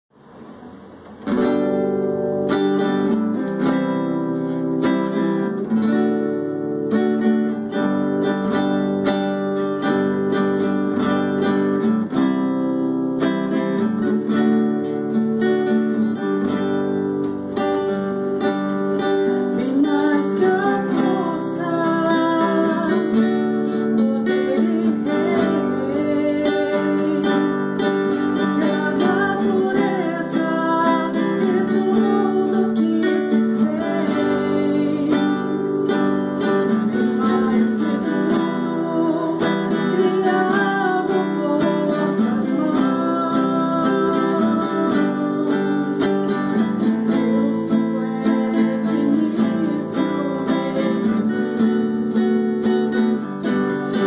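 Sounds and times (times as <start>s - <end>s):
acoustic guitar strumming: 0.1s - 54.0s
woman singing: 17.9s - 54.0s.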